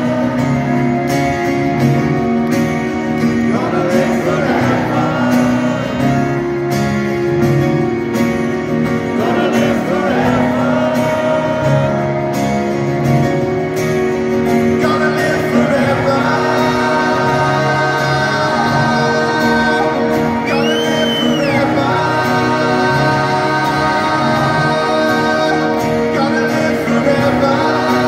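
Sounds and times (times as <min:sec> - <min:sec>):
person singing: 0:00.0 - 0:02.1, 0:08.8 - 0:12.7, 0:14.6 - 0:28.0
live rock band playing: 0:00.0 - 0:28.0
whistle rising and falling: 0:20.4 - 0:21.6.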